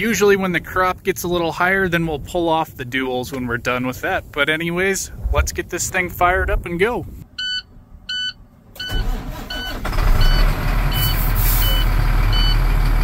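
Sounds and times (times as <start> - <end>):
diesel engine cranking and starting: 8.7 - 13.0.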